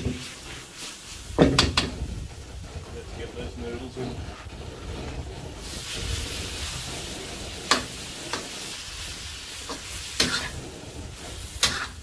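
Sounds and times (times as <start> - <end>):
food sizzling in a wok: 0.0 - 2.5, 5.5 - 12.0
metal spatula scraping a wok: 0.0 - 12.0.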